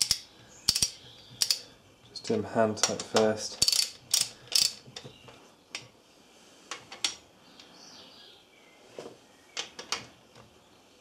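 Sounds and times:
ratchet wrench clicking: 0:00.0 - 0:01.6, 0:03.6 - 0:04.8.

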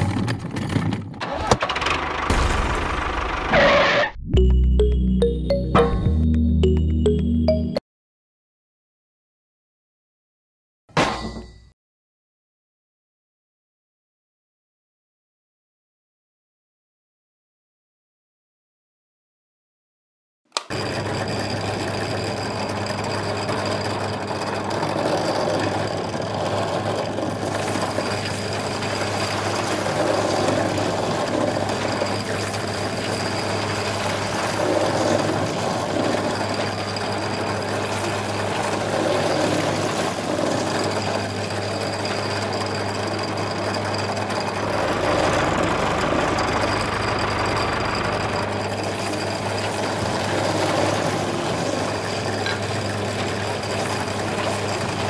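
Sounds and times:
auger drilling into sand: 0:20.6 - 0:55.0
electric gear motor humming: 0:20.6 - 0:55.0.

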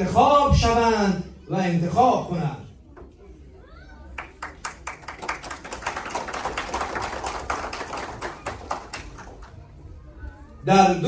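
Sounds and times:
audience applauding: 0:04.2 - 0:09.5.

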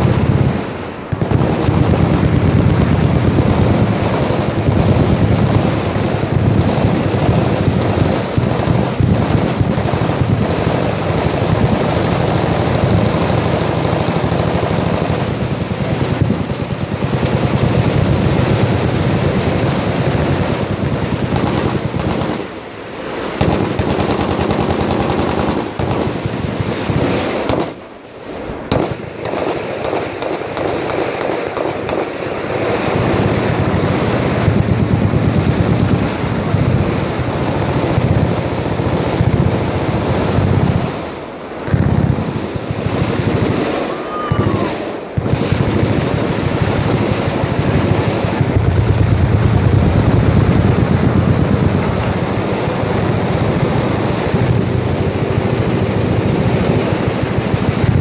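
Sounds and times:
machine guns firing: 0:00.0 - 0:58.0.

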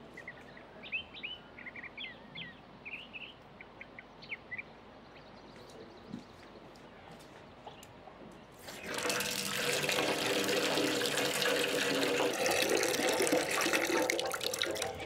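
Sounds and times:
tap water splashing into metal basin: 0:08.7 - 0:15.0.

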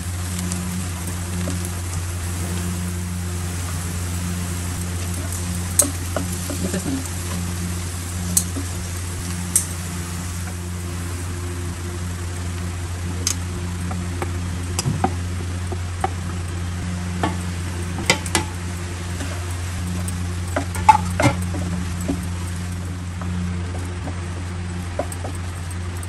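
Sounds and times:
food sizzling in oil: 0:00.0 - 0:23.5
low steady hum: 0:00.0 - 0:26.0
steel plate tapping pan: 0:17.1 - 0:22.3.

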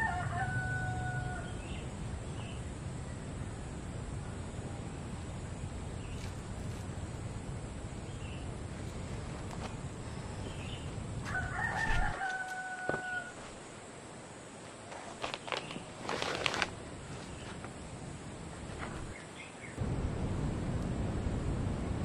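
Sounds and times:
rooster crowing: 0:00.0 - 0:01.8, 0:11.2 - 0:13.6
knocks and rustles: 0:11.2 - 0:13.6.

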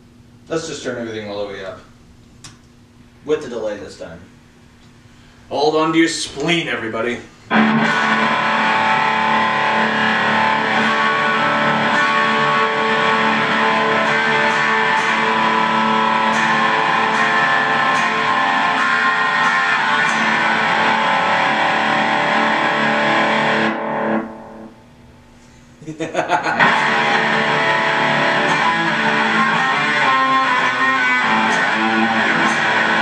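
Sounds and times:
loud electric guitar with delay: 0:07.5 - 0:25.0, 0:26.2 - 0:33.0.

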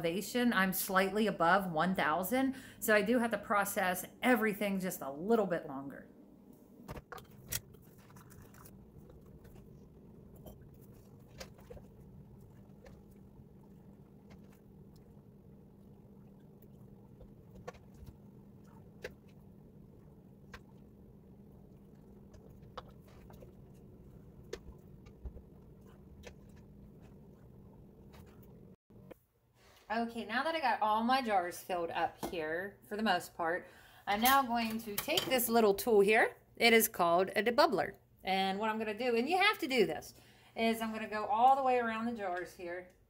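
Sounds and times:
steady low hum: 0:05.9 - 0:29.4.

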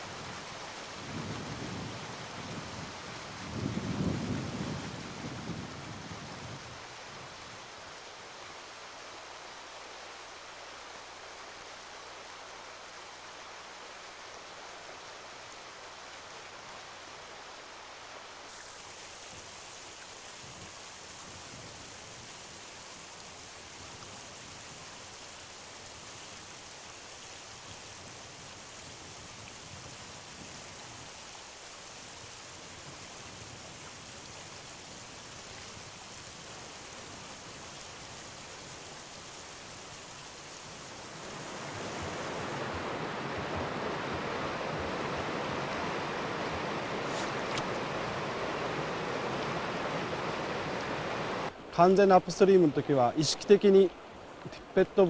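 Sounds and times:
river current rushing: 0:00.0 - 0:55.0
wind buffeting microphone: 0:01.0 - 0:07.3.

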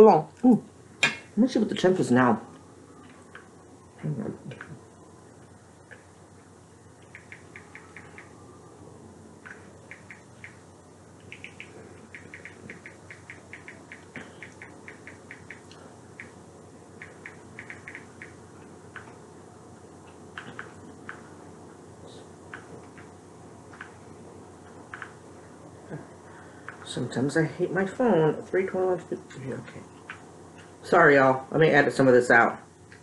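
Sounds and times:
faint room hum: 0:00.0 - 0:33.0
high-pitched clicks or chirps: 0:07.0 - 0:08.3, 0:09.5 - 0:10.6, 0:11.2 - 0:16.4, 0:17.0 - 0:18.4.

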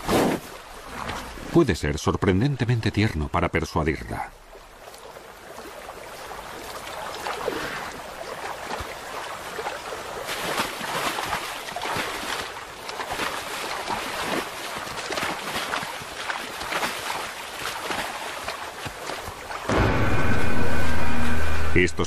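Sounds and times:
animals splashing in river: 0:04.4 - 0:20.9.

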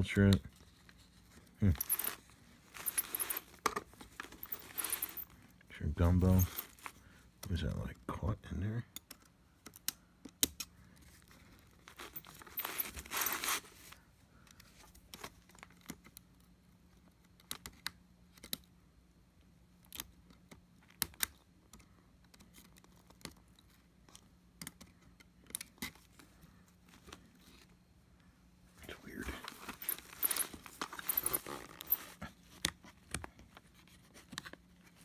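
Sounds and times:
scratchy rustle: 0:00.6 - 0:05.3, 0:06.1 - 0:07.0, 0:11.8 - 0:14.0, 0:29.0 - 0:32.2
small clicks and knocks of plastic: 0:08.9 - 0:11.1, 0:14.4 - 0:18.8, 0:19.8 - 0:26.3, 0:32.5 - 0:34.7.

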